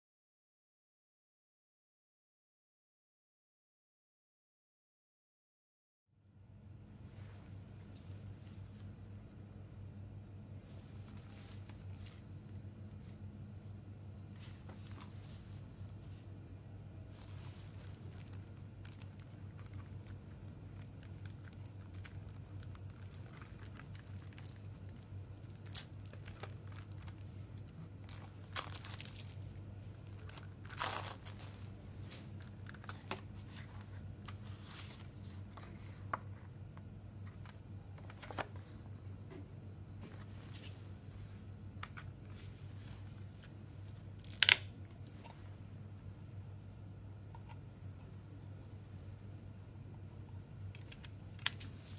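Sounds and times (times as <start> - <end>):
shrink wrap crinkling and tearing: 17.1 - 35.1, 43.9 - 44.8
plastic wrap ripping: 17.2 - 31.8.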